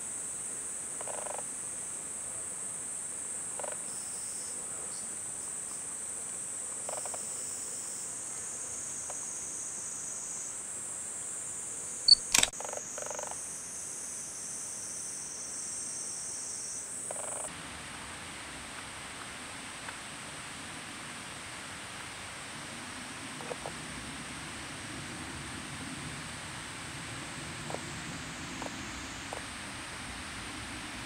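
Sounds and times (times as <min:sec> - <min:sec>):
insects chirring: 0:00.0 - 0:17.5, 0:23.1 - 0:24.2, 0:27.3 - 0:30.0
camera beep: 0:12.1 - 0:12.5
camera shutter clicks: 0:12.1 - 0:12.6.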